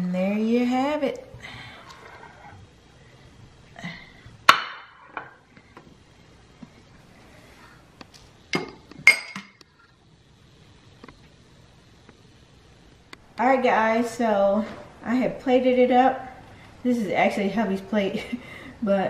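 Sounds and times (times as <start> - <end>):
plate clinking on stone countertop: 8.6 - 9.6.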